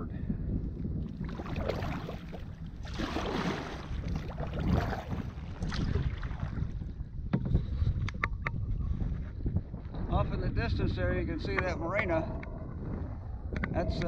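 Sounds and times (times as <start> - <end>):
wind rumbling on microphone: 0.0 - 14.0
kayak paddle splashing water: 1.1 - 6.8.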